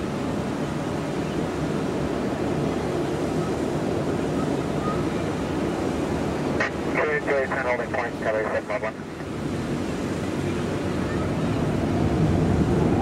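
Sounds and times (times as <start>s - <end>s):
distant jet airliners taxiing: 0.0s - 13.0s.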